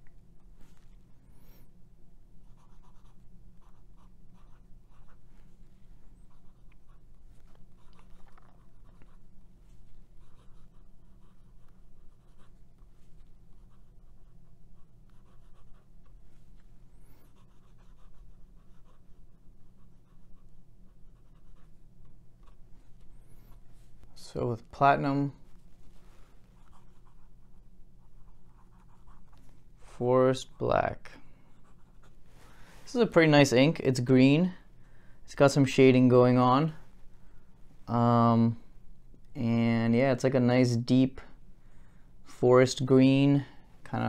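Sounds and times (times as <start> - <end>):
steady low hum: 0.0 - 44.0
pen scratching on paper: 2.4 - 5.3, 10.1 - 12.9, 13.5 - 16.2, 17.1 - 19.2, 21.1 - 21.7.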